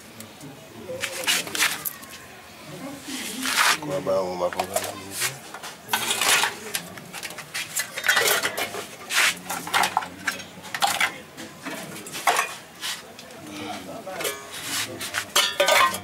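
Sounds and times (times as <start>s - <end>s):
scrap metal clinking and clattering: 4.6s - 12.6s, 14.2s - 16.0s.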